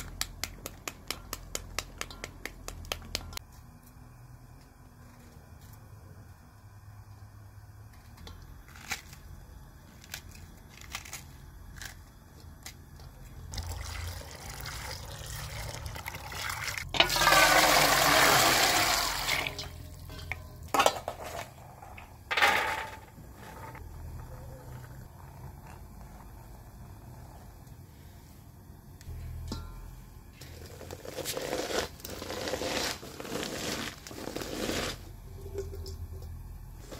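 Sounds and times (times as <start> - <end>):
hose water running into steel bowl: 13.5 - 20.6.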